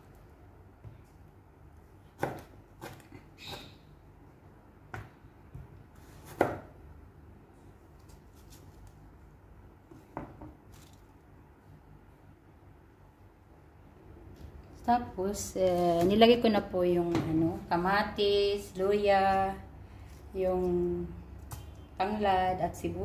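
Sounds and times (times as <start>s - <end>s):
knife chopping on cutting board: 2.2s - 3.6s, 4.9s - 6.8s.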